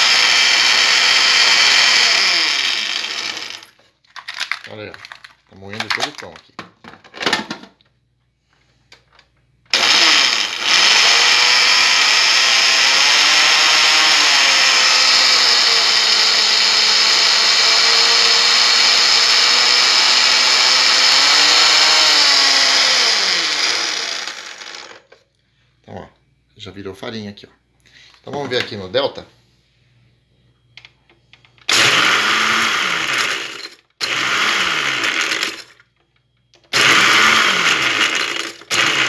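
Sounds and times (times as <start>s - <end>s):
blender motor grinding bread: 0.0s - 3.8s, 9.7s - 25.0s, 31.7s - 35.7s, 36.7s - 39.0s.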